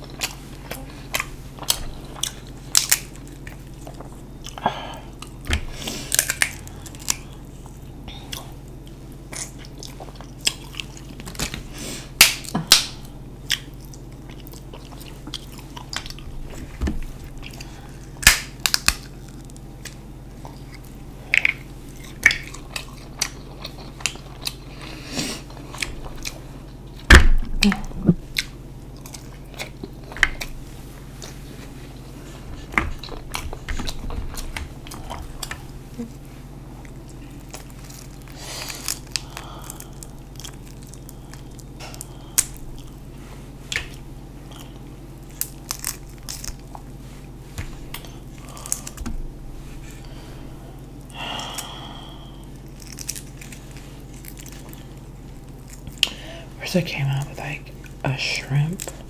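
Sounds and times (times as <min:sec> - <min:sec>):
chewing and sucking: 0:00.0 - 0:11.4, 0:13.4 - 0:36.2
crab shells cracking and snapping: 0:01.1 - 0:04.6, 0:05.2 - 0:16.4, 0:17.2 - 0:24.7, 0:25.4 - 0:30.6, 0:36.8 - 0:43.0, 0:43.7 - 0:47.0, 0:47.6 - 0:49.2, 0:50.9 - 0:56.4.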